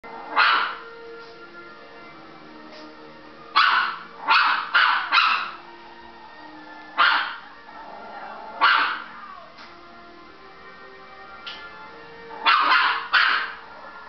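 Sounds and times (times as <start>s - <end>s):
tv soundtrack music: 0.0s - 14.0s
small dog barking: 0.2s - 0.8s, 3.6s - 5.6s, 7.0s - 7.4s, 8.6s - 9.1s, 12.4s - 13.8s.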